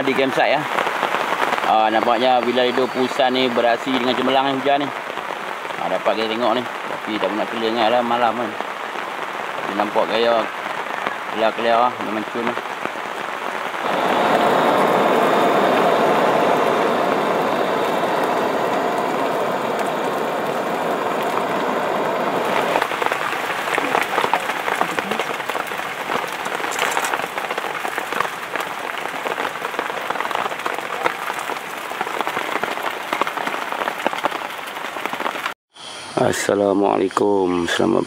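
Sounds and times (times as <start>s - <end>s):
steady rain falling: 0.0s - 35.6s.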